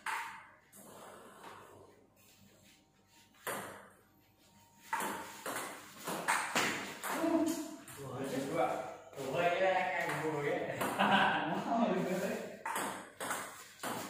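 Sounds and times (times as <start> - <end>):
table tennis ball hits: 0.0 - 0.5, 4.9 - 7.3, 12.6 - 14.0.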